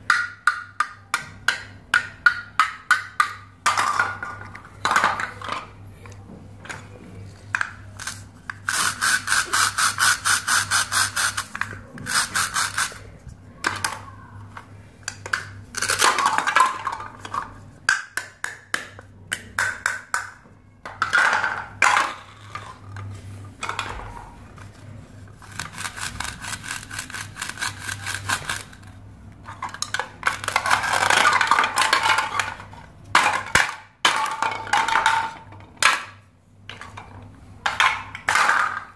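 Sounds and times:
plastic pieces clattering: 0:15.2 - 0:17.4, 0:29.5 - 0:36.2.

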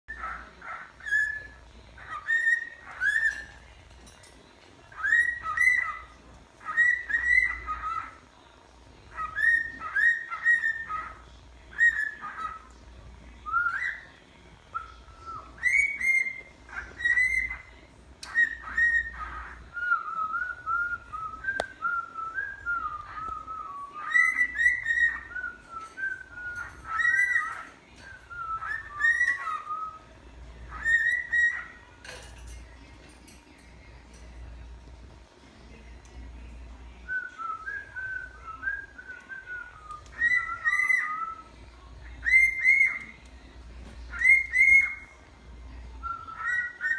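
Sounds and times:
cockatiel whistling: 0:00.1 - 0:03.5, 0:04.9 - 0:08.2, 0:09.1 - 0:12.7, 0:13.4 - 0:14.1, 0:14.7 - 0:30.1, 0:30.7 - 0:31.8, 0:37.1 - 0:41.5, 0:42.2 - 0:43.1, 0:44.1 - 0:45.2, 0:46.0 - 0:46.9.

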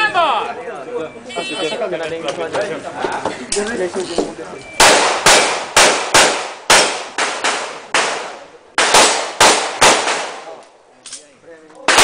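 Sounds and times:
handgun shots echoing: 0:04.8 - 0:10.6.

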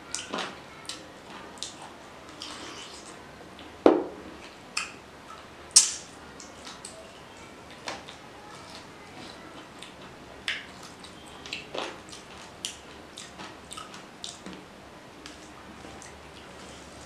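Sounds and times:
person chewing food: 0:01.6 - 0:03.2, 0:10.8 - 0:14.6
mouth smacks and clicks: 0:05.8 - 0:06.1.

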